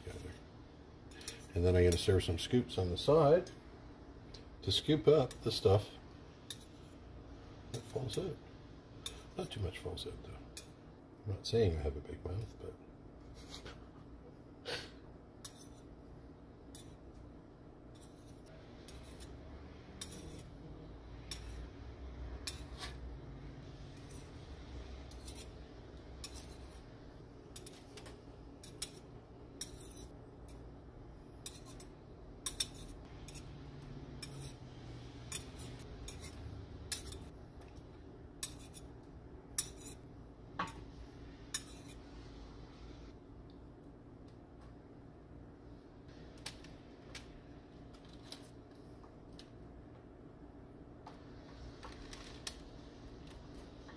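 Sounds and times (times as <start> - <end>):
low steady hum: 0.0 - 53.9
metal spoons clicking and scraping: 1.1 - 3.6, 4.7 - 5.8, 6.5 - 7.0, 15.4 - 15.9, 16.7 - 17.1, 17.9 - 19.4, 20.0 - 20.6, 21.2 - 21.8, 22.4 - 23.0, 24.0 - 24.4, 25.0 - 26.8, 27.5 - 30.7, 31.4 - 34.6, 35.2 - 37.8, 38.4 - 40.1, 41.5 - 42.0.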